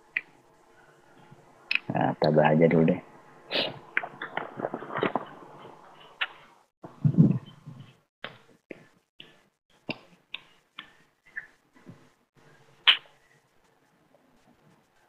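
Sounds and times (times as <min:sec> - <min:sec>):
faint steady hum: 0:00.0 - 0:08.0.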